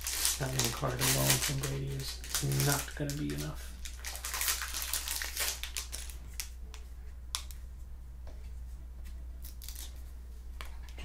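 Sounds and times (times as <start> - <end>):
wrapper crinkling and crackling: 0.0 - 6.6, 9.4 - 10.0.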